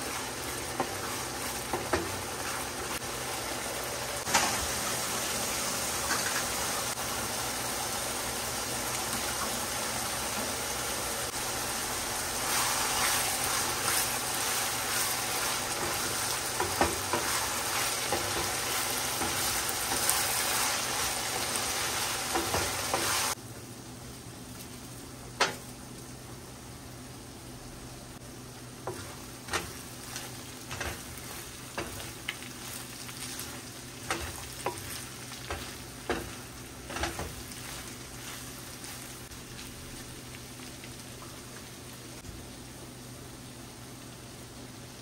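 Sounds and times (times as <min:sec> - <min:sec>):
meat sizzling in a pan: 0:00.0 - 0:23.4, 0:28.2 - 0:45.0
wooden spoon scraping a pan: 0:12.5 - 0:23.3, 0:28.8 - 0:39.2.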